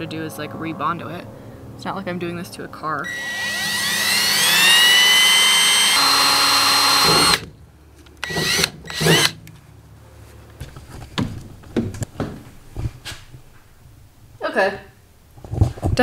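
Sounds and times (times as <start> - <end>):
cordless drill whining: 3.0 - 7.5, 8.2 - 9.4.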